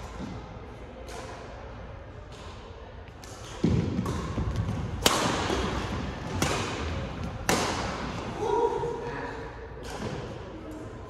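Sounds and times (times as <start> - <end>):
rackets striking shuttlecock: 3.2 - 8.2.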